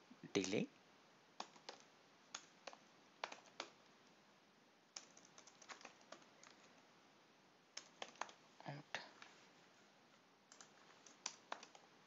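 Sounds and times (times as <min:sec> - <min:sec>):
computer keyboard typing: 0:00.3 - 0:00.6, 0:01.4 - 0:03.8, 0:04.9 - 0:06.8, 0:07.8 - 0:08.4, 0:10.5 - 0:11.9.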